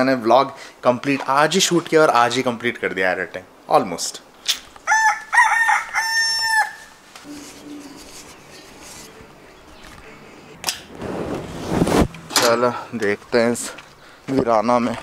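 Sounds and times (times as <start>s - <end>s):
rooster crowing: 4.8s - 8.0s.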